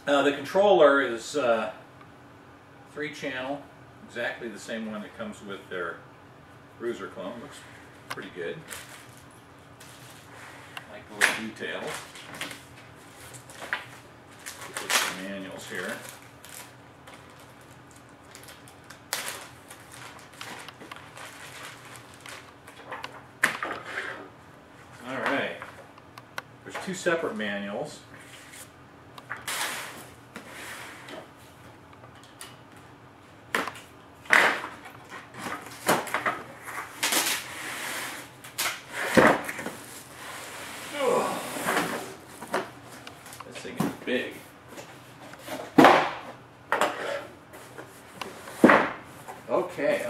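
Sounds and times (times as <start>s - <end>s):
plastic bag crinkling: 14.4s - 22.6s.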